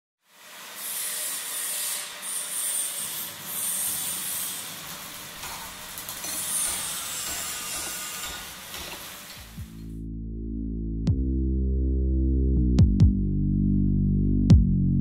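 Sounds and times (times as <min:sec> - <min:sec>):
hissing crackling effect: 0:04.1 - 0:10.0.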